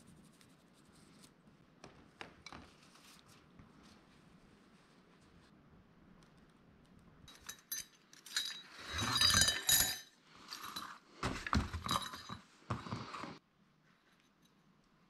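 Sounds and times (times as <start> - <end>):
small metal parts clinking: 7.3 - 12.4.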